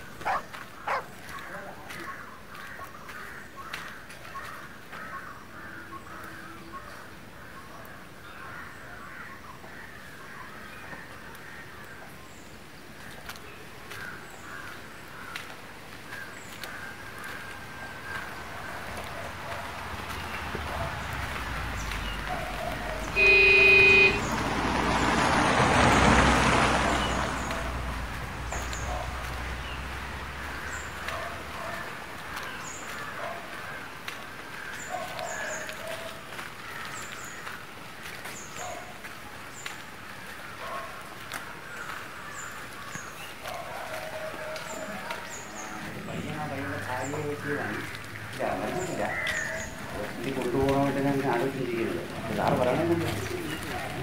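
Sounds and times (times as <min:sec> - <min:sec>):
birds calling: 0:00.0 - 0:54.0
van passing by: 0:19.2 - 0:31.8, 0:45.6 - 0:54.0.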